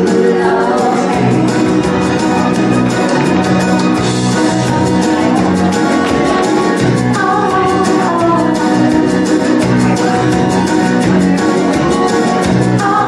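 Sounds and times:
woman singing: 0.0s - 2.1s, 7.1s - 9.0s, 12.7s - 13.0s
amplified acoustic guitar: 0.0s - 13.0s
steady beat: 0.8s - 13.0s.

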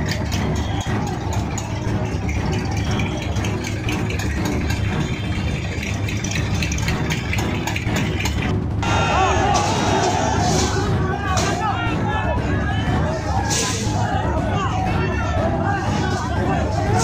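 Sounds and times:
tractor engines rumbling: 0.0s - 17.0s
rattling clicks: 1.1s - 8.6s.

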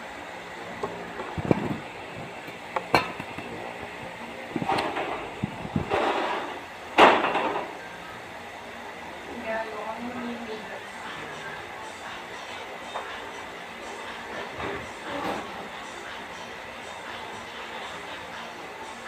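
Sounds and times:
steady background hum: 0.0s - 19.0s
objects knocking and clattering: 2.8s - 3.6s.

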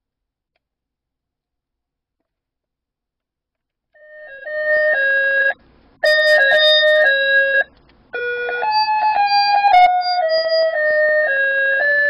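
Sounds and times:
alarm clock electronic melody: 4.0s - 12.0s.

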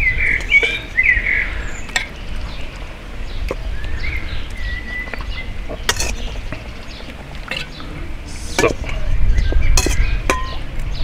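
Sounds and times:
birds chirping and whistling: 0.0s - 11.0s.

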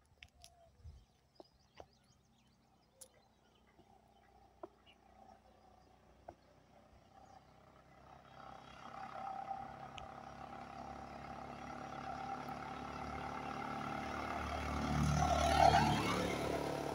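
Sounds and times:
vehicle engine approaching: 3.5s - 16.9s.

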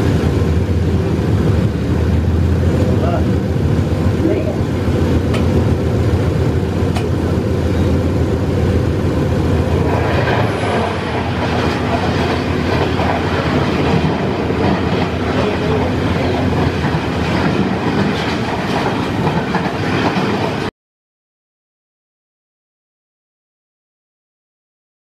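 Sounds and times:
locomotive engine drone: 0.0s - 20.7s
passing train rumble and clatter: 0.0s - 20.7s
wheels clattering on rails: 4.0s - 8.9s, 9.5s - 20.7s.

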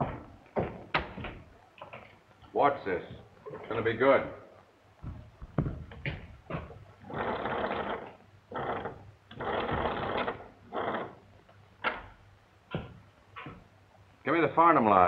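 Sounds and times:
telephone crank whirring: 7.1s - 11.1s.

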